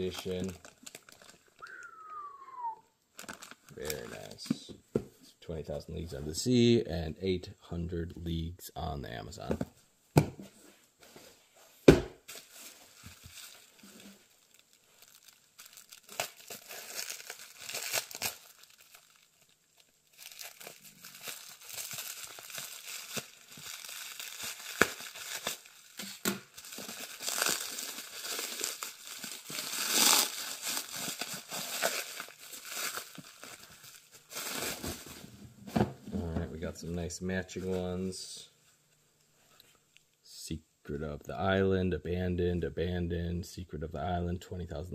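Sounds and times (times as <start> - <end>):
plastic wrapping crinkling and tearing: 0.0 - 2.2, 3.1 - 4.4, 12.3 - 35.2.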